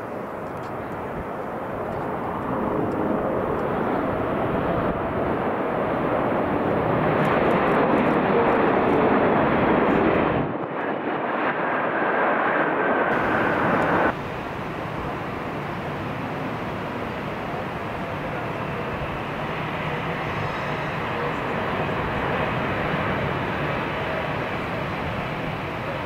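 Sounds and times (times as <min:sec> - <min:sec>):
jet engines passing low: 0:00.0 - 0:26.0
faint steady whine: 0:13.2 - 0:26.0.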